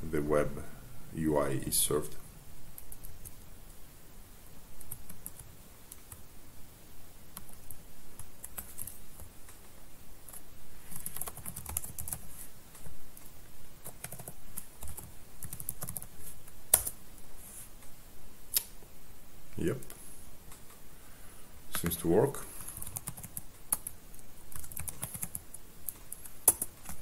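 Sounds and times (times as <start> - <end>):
typing on a keyboard: 7.4 - 9.6, 10.3 - 12.2, 13.8 - 16.1, 16.7 - 17.0, 22.7 - 27.0.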